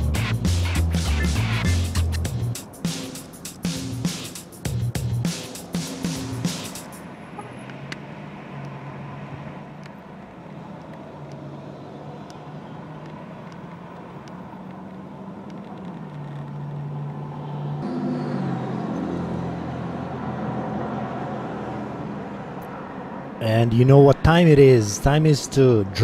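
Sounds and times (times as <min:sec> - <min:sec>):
car engines running: 0:00.0 - 0:26.0
road noise: 0:00.0 - 0:26.0.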